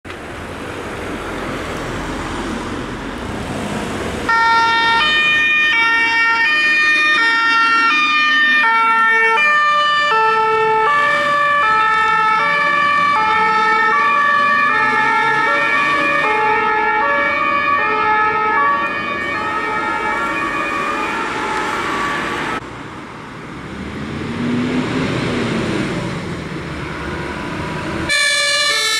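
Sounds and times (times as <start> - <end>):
vehicle engine and road noise: 0.0 - 28.9
fire engine two-tone sirens: 4.2 - 23.1, 26.8 - 28.9.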